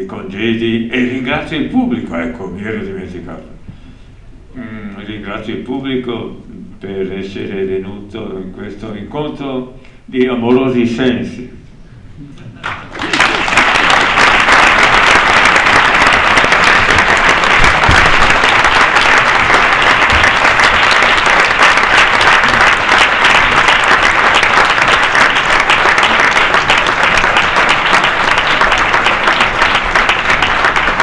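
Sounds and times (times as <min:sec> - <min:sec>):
large audience applauding: 0:12.6 - 0:31.0.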